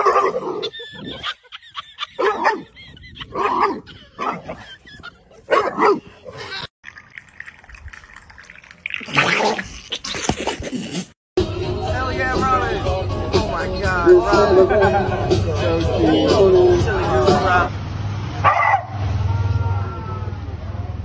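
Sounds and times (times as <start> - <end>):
dog barking: 0.0 - 0.4, 2.2 - 2.7, 3.4 - 4.6, 5.5 - 6.1, 18.4 - 19.0.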